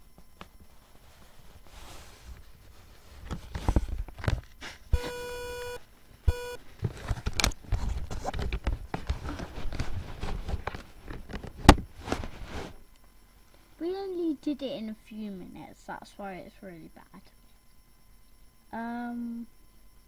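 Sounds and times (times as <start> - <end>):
electronic beep: 5.0 - 6.6
camera handling noise: 6.8 - 11.8.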